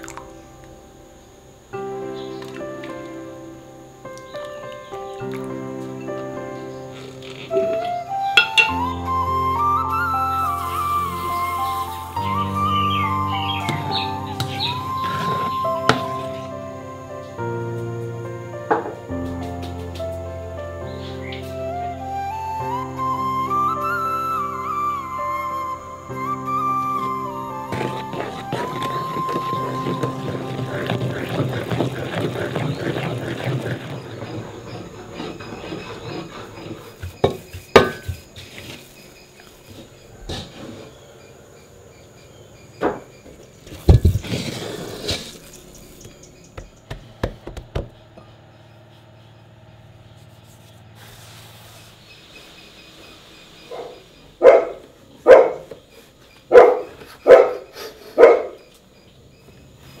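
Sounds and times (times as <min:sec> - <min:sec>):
utensil knocking metal bowl: 0:08.4 - 0:08.7
wooden stick scraping dough in bowl: 0:13.5 - 0:16.4, 0:27.0 - 0:39.1
dog barking: 0:53.7 - 0:55.7, 0:56.5 - 0:58.6
dog yelp: 0:53.7 - 0:55.7, 0:56.5 - 0:58.6.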